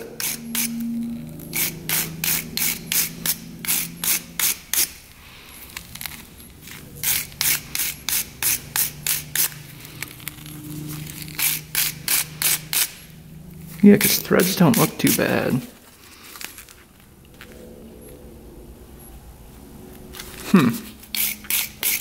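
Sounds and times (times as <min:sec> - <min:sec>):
metal clicking and rubbing of threads: 0:00.0 - 0:05.0.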